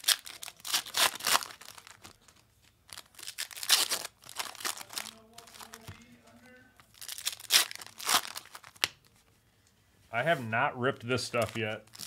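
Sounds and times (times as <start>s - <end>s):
plastic wrapping crinkling and tearing: 0.0s - 5.9s, 6.8s - 9.2s, 11.2s - 12.0s.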